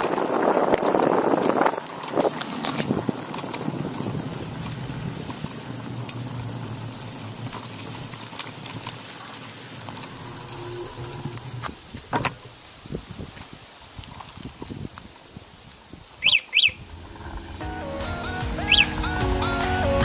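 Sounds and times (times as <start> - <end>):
bike tyre and wind noise: 0.0 - 19.8
sharp knocks and rattles: 0.8 - 12.6.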